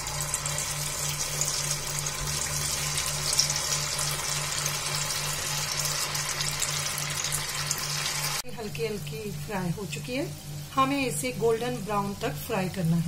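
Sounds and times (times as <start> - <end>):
deep frying sizzle and crackle: 0.0 - 13.0.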